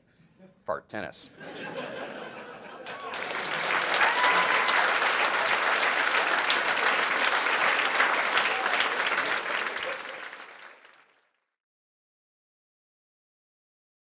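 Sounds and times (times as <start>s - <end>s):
audience applauding: 2.8s - 11.3s.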